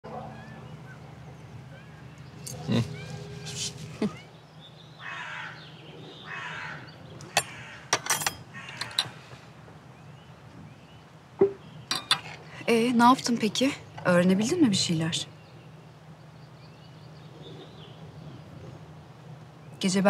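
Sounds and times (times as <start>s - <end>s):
small birds chirping: 0.1s - 20.0s
crow cawing: 5.0s - 9.4s.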